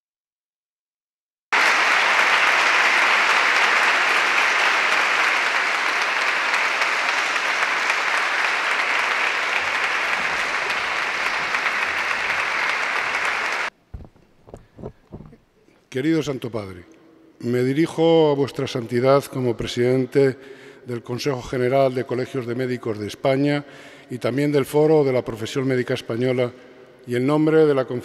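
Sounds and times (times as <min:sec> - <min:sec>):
audience applauding: 0:01.5 - 0:13.8.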